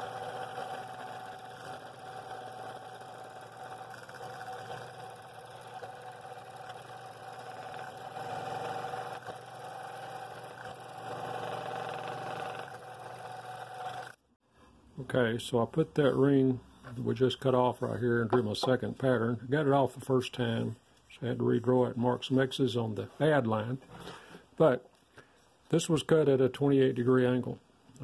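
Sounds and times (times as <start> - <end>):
saw cutting wood: 0.0 - 14.2
scroll saw humming: 0.0 - 14.2.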